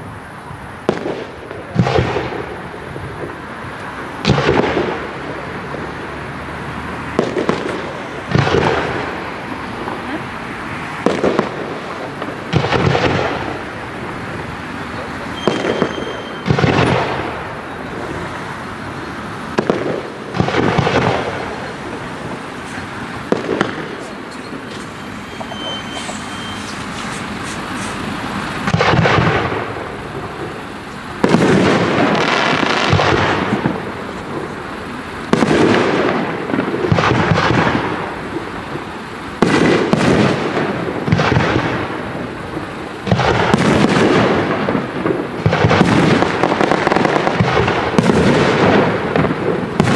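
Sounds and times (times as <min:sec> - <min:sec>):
firework shells bursting: 0:11.0 - 0:17.8, 0:18.6 - 0:34.5.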